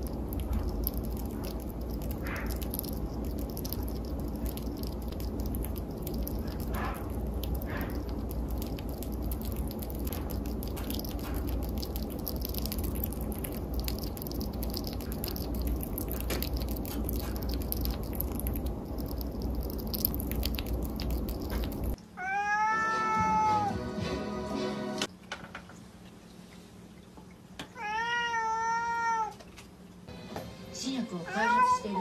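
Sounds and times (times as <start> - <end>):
chipmunk nibbling clicks: 0.0 - 22.0
steady low hum: 0.0 - 22.2.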